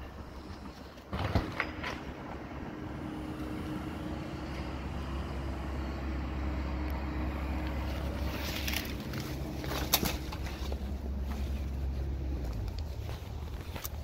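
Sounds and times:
rustling: 0:07.6 - 0:14.0.

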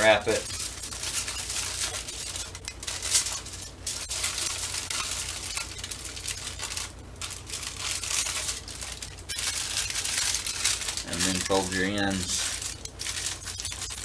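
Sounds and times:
aluminum foil crinkling: 0:00.0 - 0:14.0.

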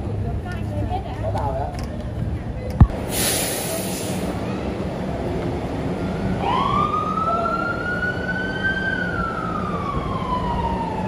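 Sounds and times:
siren wailing: 0:06.4 - 0:11.0.

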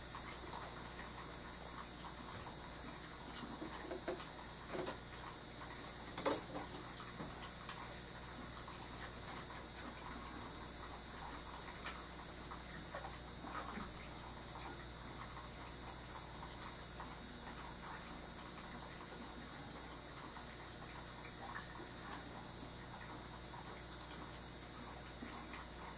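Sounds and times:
small ticks and taps: 0:03.4 - 0:05.0, 0:06.2 - 0:07.8.

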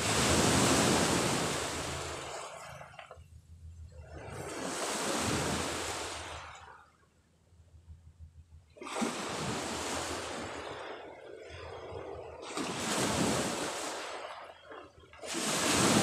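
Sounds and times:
sea waves washing onto shore: 0:00.0 - 0:03.0, 0:04.2 - 0:06.7, 0:12.4 - 0:16.0.

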